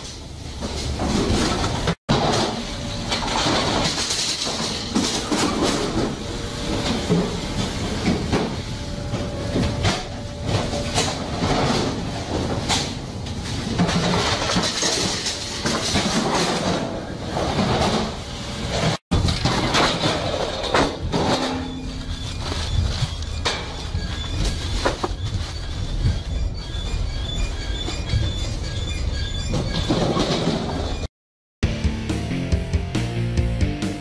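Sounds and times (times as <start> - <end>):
processing machinery din: 1.1 - 24.7.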